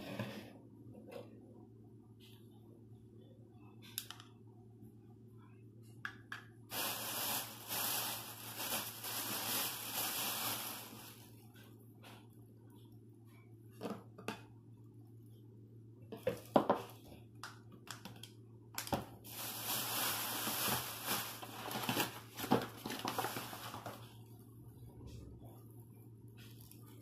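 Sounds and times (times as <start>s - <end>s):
plastic bag crinkling: 6.7s - 11.4s, 19.2s - 24.1s.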